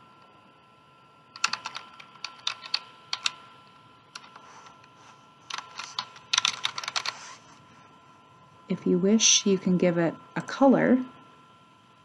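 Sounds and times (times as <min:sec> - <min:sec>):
computer keyboard typing: 0:01.4 - 0:03.4, 0:04.1 - 0:04.4, 0:05.5 - 0:07.2.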